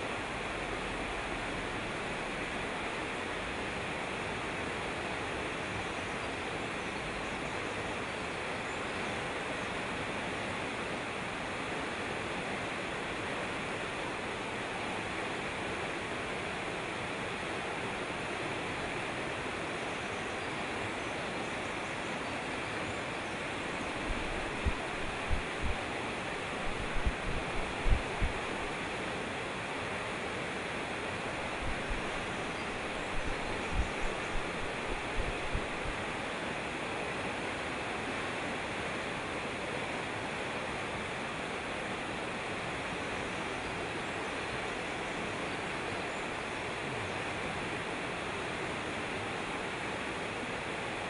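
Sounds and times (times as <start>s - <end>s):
water rushing over rocks: 23.0s - 42.8s
short low thumps: 24.1s - 25.8s, 26.6s - 28.7s.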